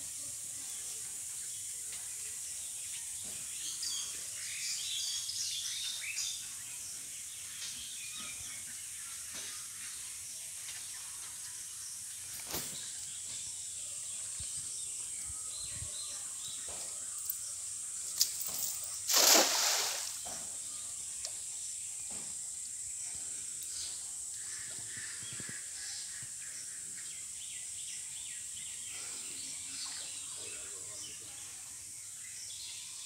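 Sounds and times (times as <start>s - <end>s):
steady high hiss: 17.2s - 32.7s
net splashing into water: 19.1s - 20.4s.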